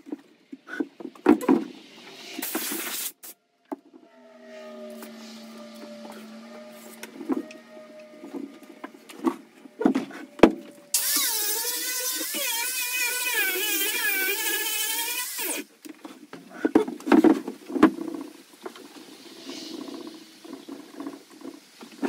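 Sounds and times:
angle grinder grinding wood: 0:03.8 - 0:15.8.

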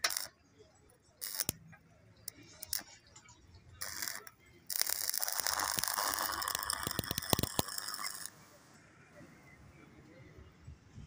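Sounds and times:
welding arc crackling: 0:00.0 - 0:00.3, 0:01.2 - 0:01.6, 0:02.6 - 0:03.0, 0:03.8 - 0:08.3
welding electrode scratching: 0:00.0 - 0:00.3, 0:01.2 - 0:01.6, 0:02.6 - 0:03.0, 0:03.8 - 0:08.3.

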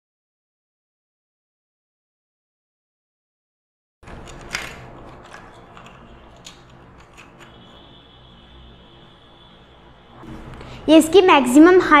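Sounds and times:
tripod locks clicking and rattling: 0:04.1 - 0:07.5.

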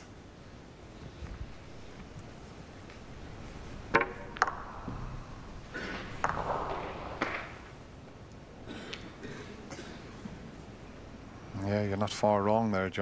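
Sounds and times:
snooker balls clicking: 0:02.0 - 0:09.1.

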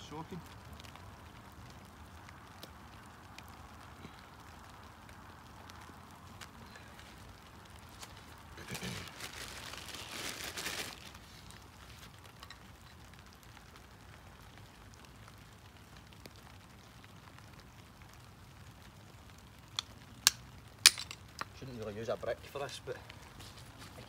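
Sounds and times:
campfire crackling and popping: 0:00.0 - 0:24.0
footsteps in wet grass: 0:05.8 - 0:12.9, 0:23.0 - 0:24.0.

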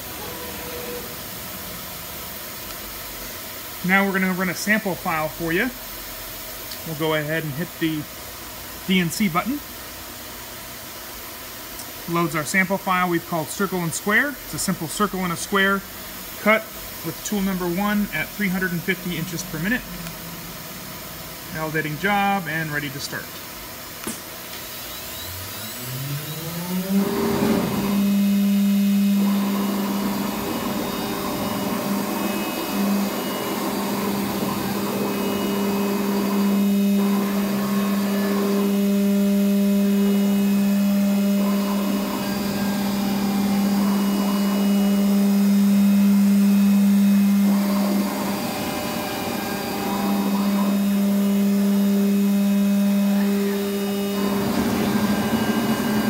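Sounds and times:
rushing mechanical gantry noise: 0:25.9 - 0:38.7, 0:53.6 - 0:56.0.

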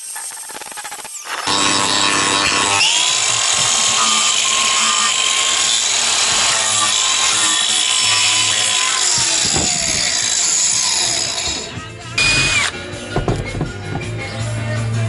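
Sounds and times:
disc tearing wood: 0:00.3 - 0:12.8
angle grinder motor whine: 0:01.2 - 0:12.8.

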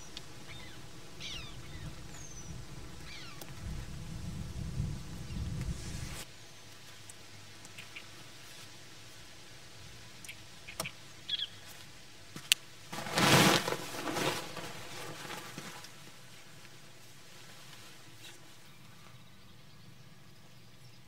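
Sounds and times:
tent fabric whooshing: 0:12.9 - 0:15.9.

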